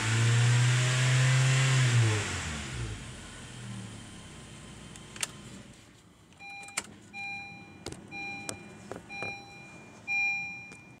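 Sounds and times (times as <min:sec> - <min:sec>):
car warning chime beeping: 0:06.4 - 0:11.0.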